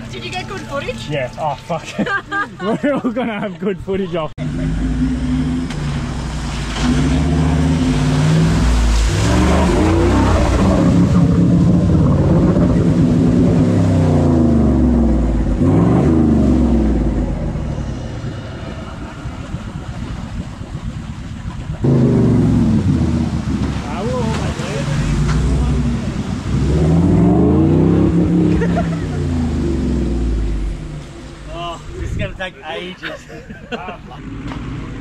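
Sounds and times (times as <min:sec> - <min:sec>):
engine revving hard: 0:04.4 - 0:18.3, 0:21.8 - 0:31.5
muddy water sloshing: 0:04.4 - 0:32.4.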